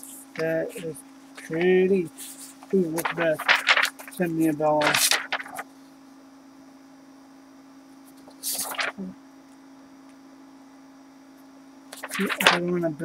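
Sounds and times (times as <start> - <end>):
electrical hum: 0.0 - 13.0
paper rustling: 0.8 - 5.8, 8.1 - 9.0, 12.0 - 12.7.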